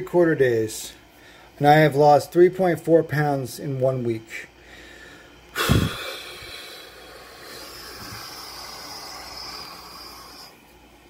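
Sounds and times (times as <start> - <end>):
person breathing out hissing: 4.6 - 10.6.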